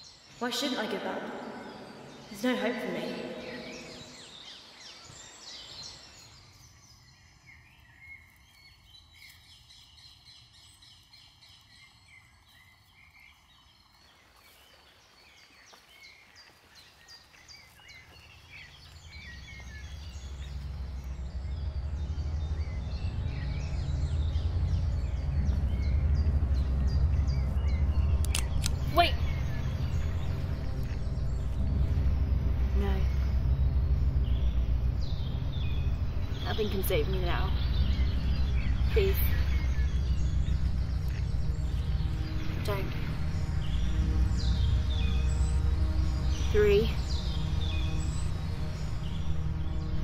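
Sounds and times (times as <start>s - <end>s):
birds singing and chirping: 0.0s - 50.0s
low rumble: 17.8s - 50.0s.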